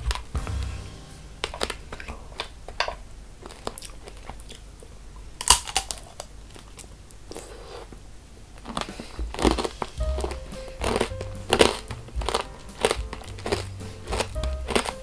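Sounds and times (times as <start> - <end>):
crunchy candy chewing: 3.4 - 4.7, 5.4 - 7.9, 8.6 - 15.0.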